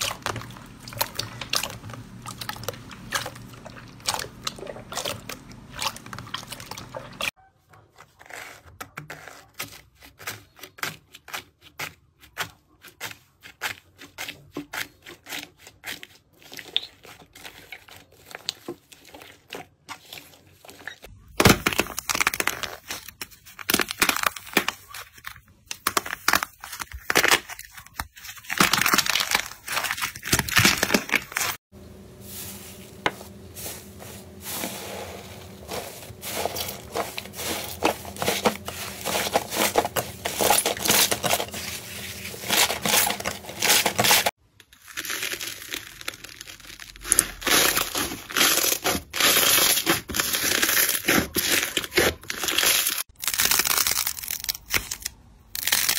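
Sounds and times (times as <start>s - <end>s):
hands squelching slime: 0.0s - 7.3s, 32.4s - 54.8s.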